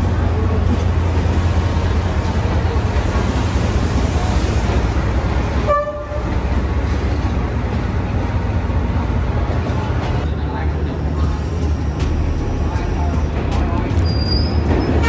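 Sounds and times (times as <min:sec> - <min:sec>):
train rolling past rumbling: 0:00.0 - 0:15.0
short train horn toot: 0:05.7 - 0:06.3.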